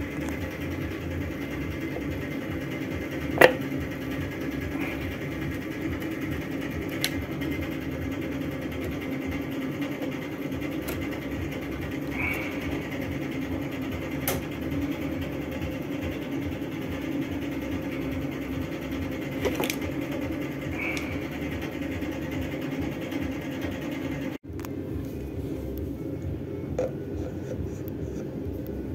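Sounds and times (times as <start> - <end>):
low mechanical hum: 0.0 - 28.9
drain pump clicks: 19.4 - 19.9.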